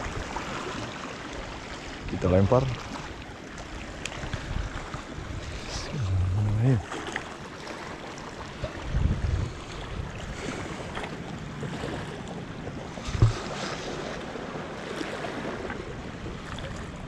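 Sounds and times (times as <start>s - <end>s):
waves washing against rocks: 3.8s - 17.0s
wind buffeting microphone: 4.1s - 6.9s, 8.4s - 17.0s
short thump: 13.1s - 13.6s.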